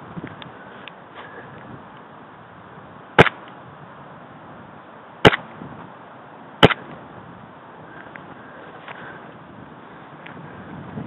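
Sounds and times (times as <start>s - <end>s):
airsoft gun shots: 3.2s - 3.4s, 5.2s - 5.4s, 6.6s - 6.9s.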